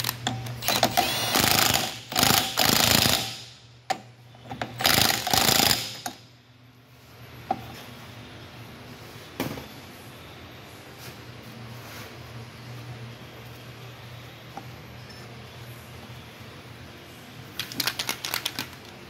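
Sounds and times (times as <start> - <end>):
impact wrench hammering: 0.2 - 4.0, 4.7 - 6.2.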